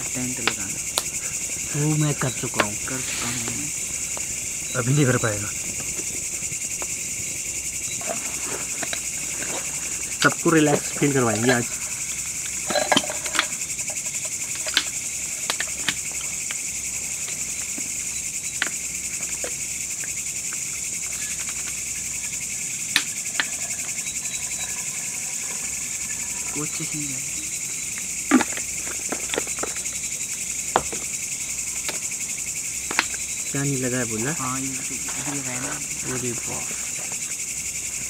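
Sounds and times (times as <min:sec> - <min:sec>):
crickets and insects chirping: 0:00.0 - 0:38.0.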